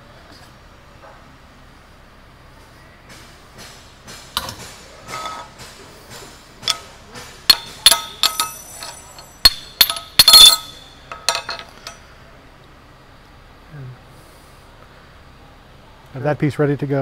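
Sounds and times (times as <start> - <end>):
hammer striking metal: 3.6 - 12.0.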